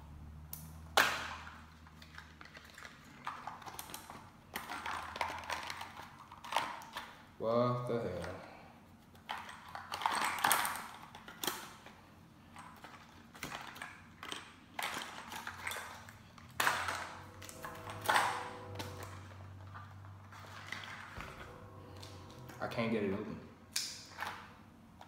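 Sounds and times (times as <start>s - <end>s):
packaging clicks and rustles: 1.8s - 7.2s, 9.0s - 17.8s
faint ringing tone: 16.9s - 24.6s.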